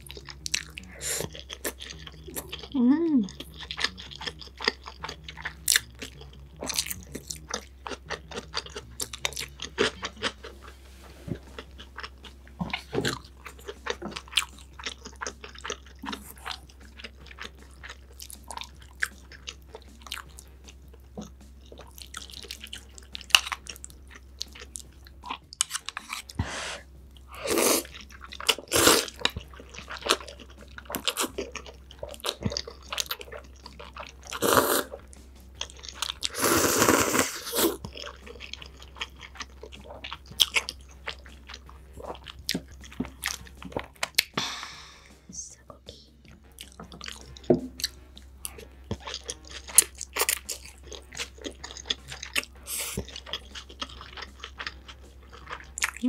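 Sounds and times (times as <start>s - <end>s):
person chewing: 0.0s - 45.2s, 46.2s - 56.0s
slurping noodles: 26.0s - 29.3s, 34.2s - 35.0s, 36.2s - 37.8s.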